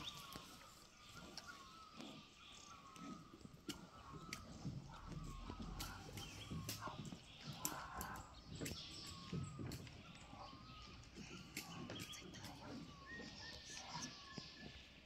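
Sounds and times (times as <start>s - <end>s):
small birds chirping: 0.0s - 15.0s
sharp clicks: 5.3s - 10.3s.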